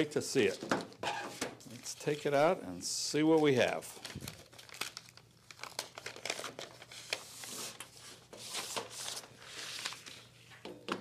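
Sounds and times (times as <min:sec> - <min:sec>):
paper crinkling and tearing: 0:03.3 - 0:10.3.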